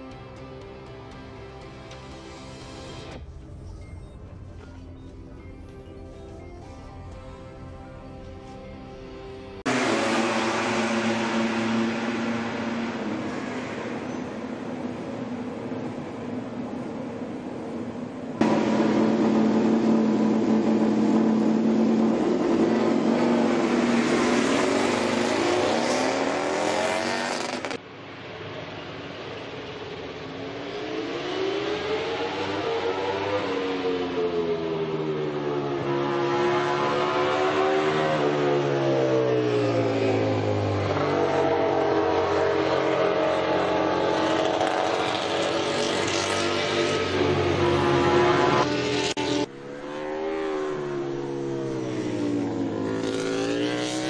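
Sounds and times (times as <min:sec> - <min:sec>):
racing motorcycle engine running: 0:09.6 - 0:14.8, 0:18.4 - 0:27.8
racing motorcycle engine revving: 0:09.7 - 0:14.3, 0:18.4 - 0:27.8, 0:31.0 - 0:54.0.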